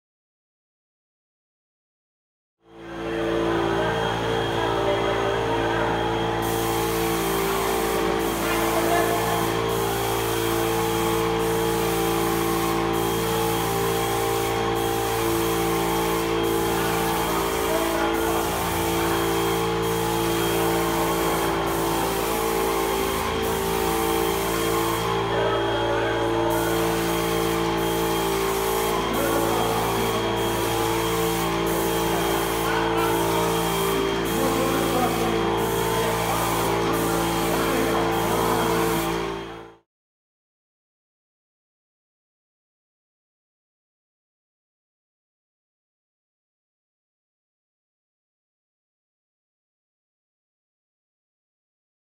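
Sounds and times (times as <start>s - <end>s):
steady hum: 2.8s - 39.7s
paint spray gun hissing: 5.4s - 39.8s.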